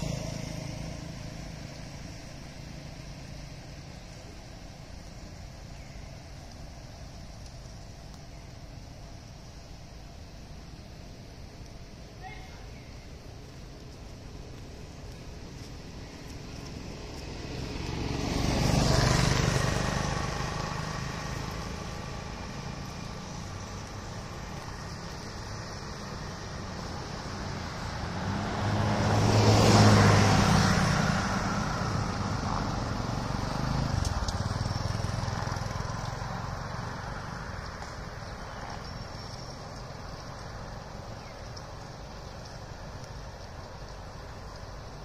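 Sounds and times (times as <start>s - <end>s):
vehicles driving past: 0.0s - 45.0s.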